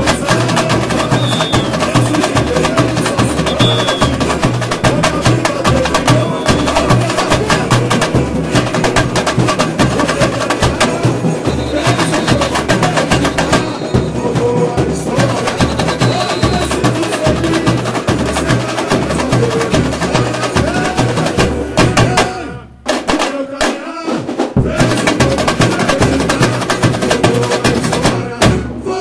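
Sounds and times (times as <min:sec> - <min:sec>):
surdo drums low pulse: 0:00.0 - 0:22.6
samba percussion ensemble: 0:00.0 - 0:29.0.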